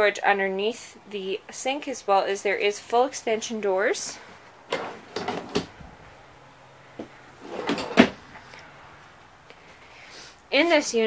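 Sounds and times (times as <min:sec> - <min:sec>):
drawer knocking shut: 0:04.7 - 0:05.8, 0:07.4 - 0:08.2
drawer sliding with rattle: 0:04.7 - 0:05.8, 0:07.4 - 0:08.5.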